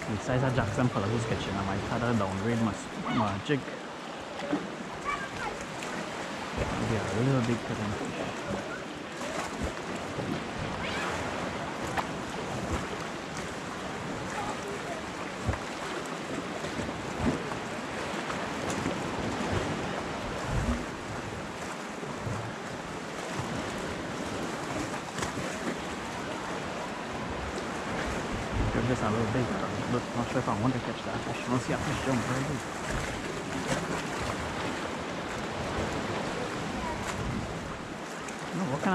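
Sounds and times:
sea waves washing against rocks: 0.0 - 38.9
wind buffeting microphone: 9.4 - 30.0, 31.8 - 38.0.

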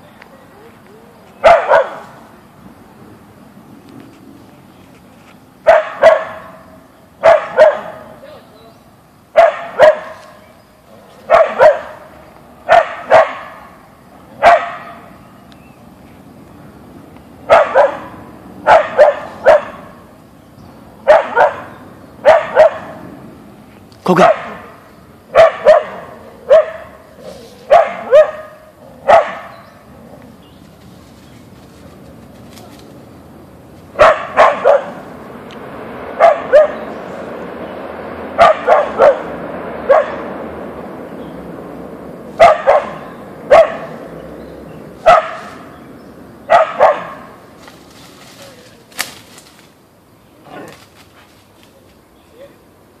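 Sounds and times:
dog barking: 1.4 - 2.2, 5.6 - 8.2, 9.3 - 10.4, 11.3 - 13.7, 14.4 - 15.1, 17.5 - 20.0, 21.0 - 23.0, 24.2 - 27.0, 27.6 - 29.6, 34.0 - 35.0, 36.2 - 36.8, 38.4 - 39.3, 39.9 - 40.3, 42.4 - 44.0, 45.0 - 45.7, 46.5 - 47.4.

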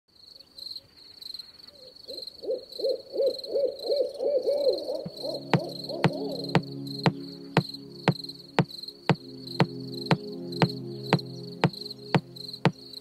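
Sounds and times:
high insect chirping: 2.1 - 13.0
short arched low calls: 4.6 - 13.0
music with held low notes: 5.0 - 13.0.

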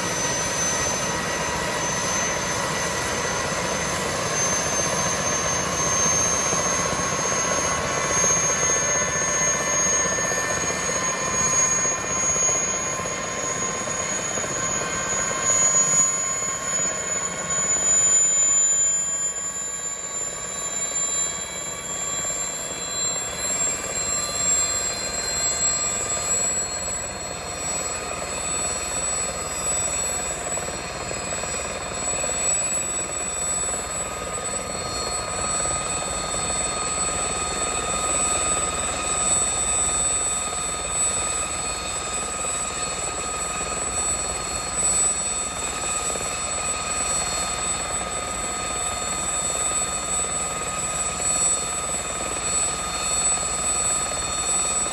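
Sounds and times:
helicopter turbine whine rising: 0.0 - 54.9.

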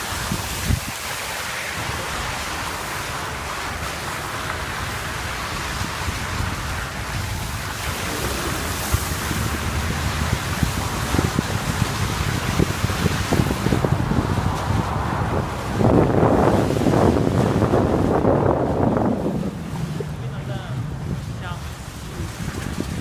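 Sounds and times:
tyres rushing through slush: 0.0 - 23.0
wind on microphone: 0.0 - 23.0
low rumble: 7.0 - 23.0.

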